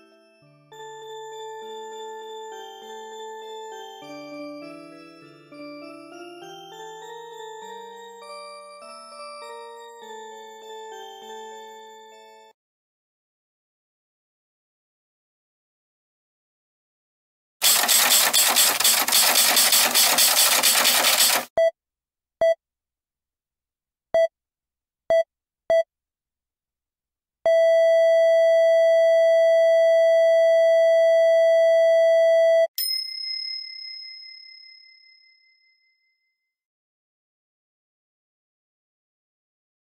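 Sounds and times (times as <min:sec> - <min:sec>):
long steady beep: 0:27.5 - 0:32.7
bell-like ding: 0:32.8 - 0:36.1.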